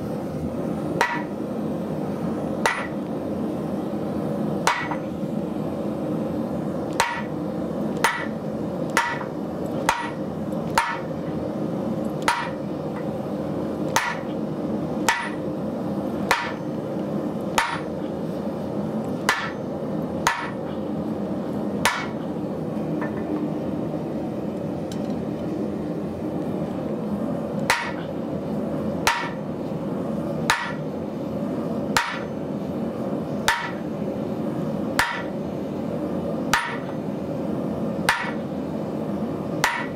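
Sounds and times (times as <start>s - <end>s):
steady hum: 0.0s - 39.9s.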